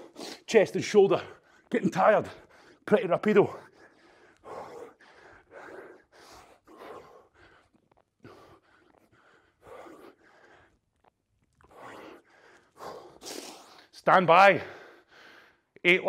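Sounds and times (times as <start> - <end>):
man breathing hard: 3.5 - 11.0, 11.6 - 13.9, 14.6 - 15.8.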